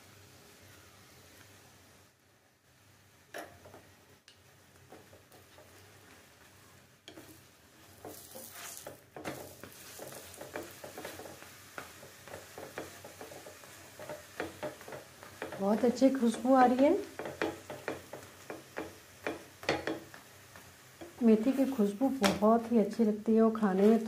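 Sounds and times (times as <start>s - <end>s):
flatbread sizzling in a pan: 0.0s - 24.0s
spatula scraping pan: 7.1s - 20.3s.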